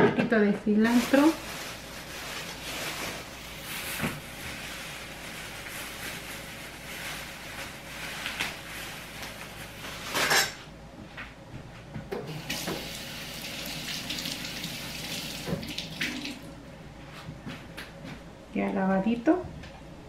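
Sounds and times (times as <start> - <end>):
kitchen tap running: 12.3 - 16.6.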